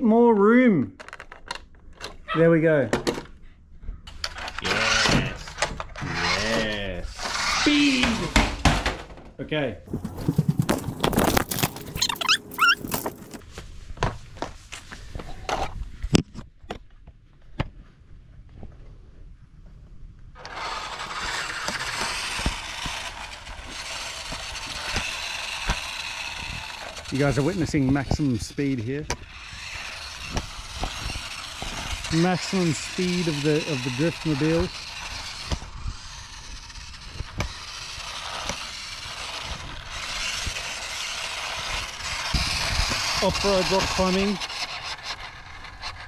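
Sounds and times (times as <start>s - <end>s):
toy truck electric motor whirring: 4.1s - 8.7s, 10.2s - 13.4s, 20.4s - 46.0s
tyres rolling on concrete: 4.1s - 13.4s, 20.4s - 46.0s.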